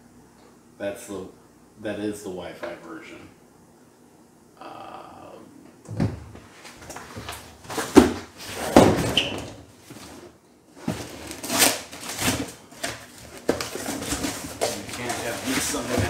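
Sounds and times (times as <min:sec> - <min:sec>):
taped flaps tearing open: 0:11.3 - 0:12.4.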